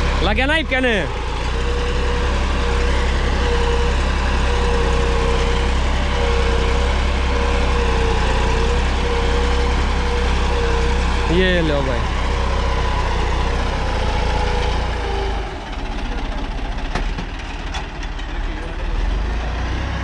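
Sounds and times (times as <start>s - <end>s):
tractor diesel engine under load: 0.0s - 20.0s.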